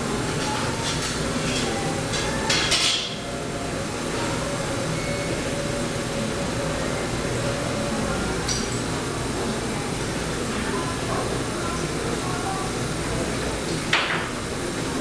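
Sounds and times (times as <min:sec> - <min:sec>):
dishes clinking: 0:00.4 - 0:03.2.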